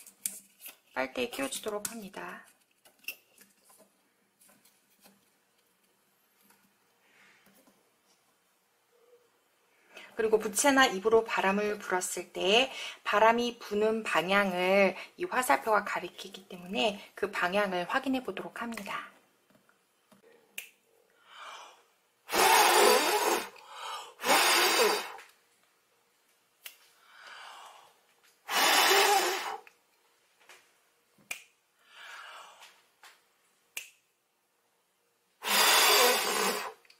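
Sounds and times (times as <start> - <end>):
soft breaths: 26.8 - 28.2, 31.8 - 32.9.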